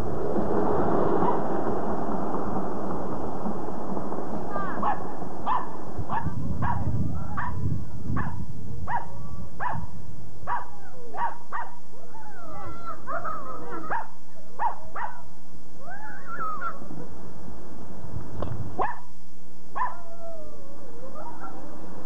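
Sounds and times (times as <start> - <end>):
dog whining yelps: 4.8 - 7.6, 10.5 - 15.2, 15.8 - 16.9, 19.8 - 21.6
small dog barking: 4.8 - 7.6, 8.2 - 9.9, 10.5 - 11.8, 13.1 - 15.3, 18.8 - 19.1, 19.8 - 20.0.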